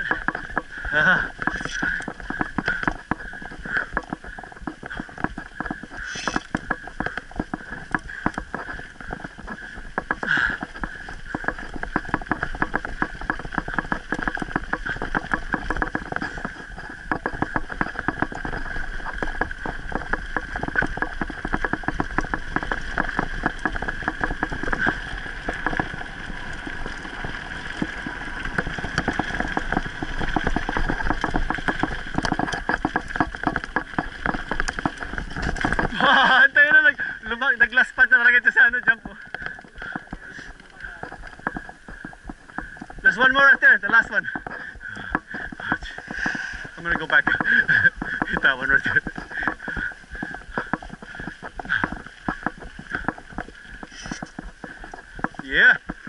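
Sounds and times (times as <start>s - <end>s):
bike rattling: 0.0s - 56.0s
tyres crunching on gravel: 0.0s - 56.0s.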